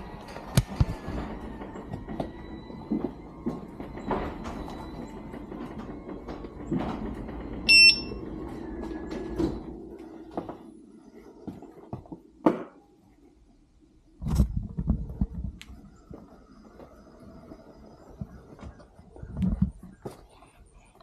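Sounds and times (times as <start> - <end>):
knocks and clunks of wheel: 0.0 - 10.7
loud electronic beep: 7.7 - 8.1.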